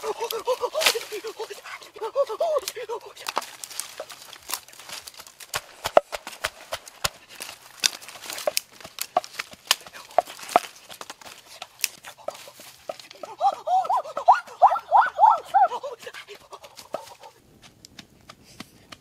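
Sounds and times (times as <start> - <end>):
person speaking: 0.0 - 4.3, 8.4 - 17.4
pestle pounding in wooden mortar: 5.5 - 7.4.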